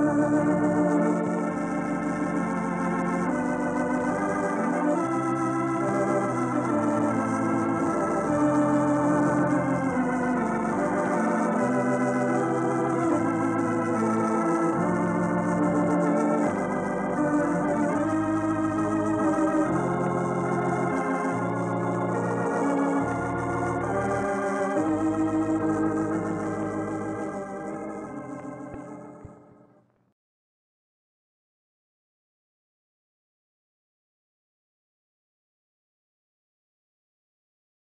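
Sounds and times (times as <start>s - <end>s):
organ music: 0.0s - 29.9s.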